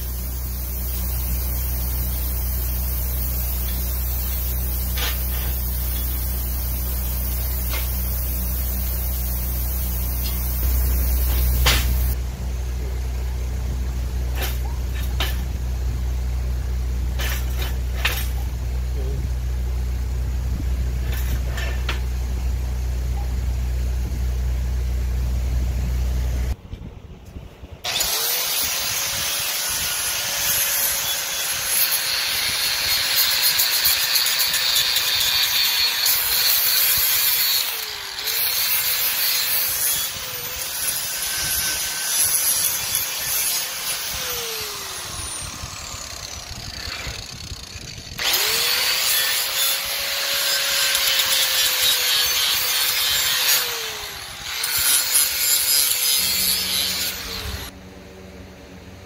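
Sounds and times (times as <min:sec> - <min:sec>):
angle grinder on steel: 0:00.0 - 0:12.2, 0:14.2 - 0:15.6, 0:17.1 - 0:18.5, 0:21.0 - 0:22.1, 0:27.9 - 0:57.8.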